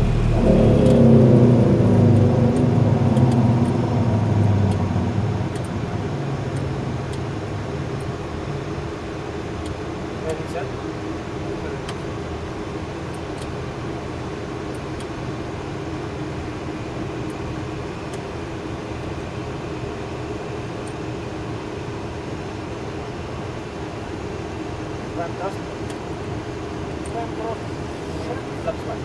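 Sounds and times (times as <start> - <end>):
air rushing past cockpit: 0.0 - 7.9
jet engines humming: 0.0 - 29.0.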